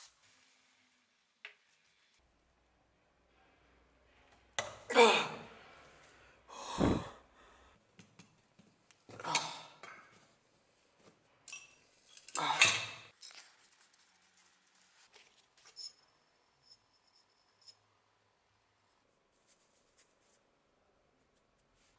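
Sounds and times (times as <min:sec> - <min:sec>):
metal parts clinking and scraping: 0:13.1 - 0:17.8.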